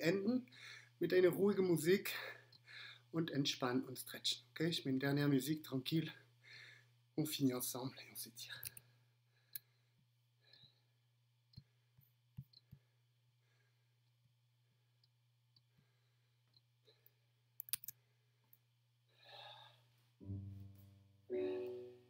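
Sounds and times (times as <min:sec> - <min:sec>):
person breathing: 0:00.5 - 0:01.0, 0:02.1 - 0:03.1, 0:06.4 - 0:06.9, 0:08.7 - 0:10.9, 0:12.7 - 0:14.0, 0:15.7 - 0:17.3, 0:19.1 - 0:20.0
quiet piano music: 0:20.2 - 0:22.0.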